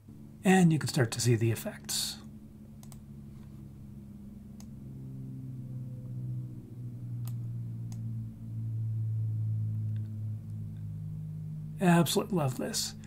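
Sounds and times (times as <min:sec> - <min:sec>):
low steady hum: 0:00.0 - 0:13.0
computer mouse clicks: 0:02.8 - 0:03.0.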